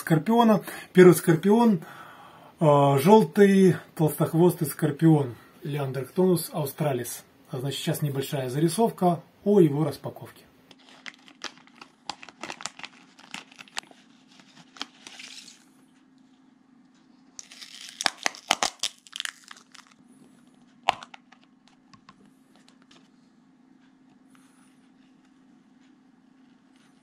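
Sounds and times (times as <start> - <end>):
packaging crinkling and rustling: 10.7 - 15.7, 17.4 - 20.0, 20.9 - 21.9.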